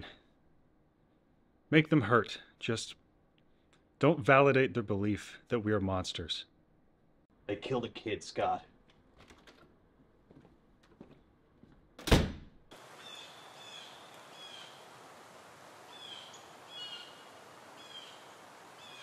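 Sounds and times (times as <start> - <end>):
door slamming shut: 12.0 - 12.6
birds chirping: 12.8 - 19.0.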